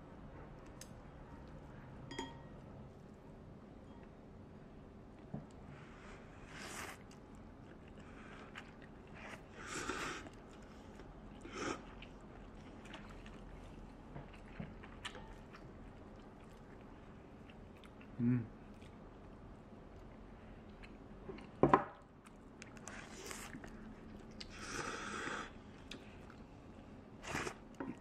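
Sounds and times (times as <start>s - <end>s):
quiet chewing: 6.6s - 28.0s.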